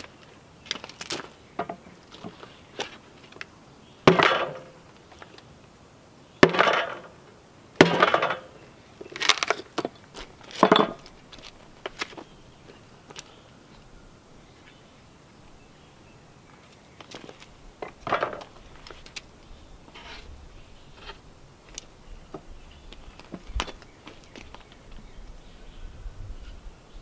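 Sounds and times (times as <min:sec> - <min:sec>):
wood splitting crackle: 0:00.0 - 0:05.4, 0:07.8 - 0:12.3
hand tool striking wood: 0:04.1 - 0:04.8, 0:06.4 - 0:07.1, 0:07.8 - 0:08.5.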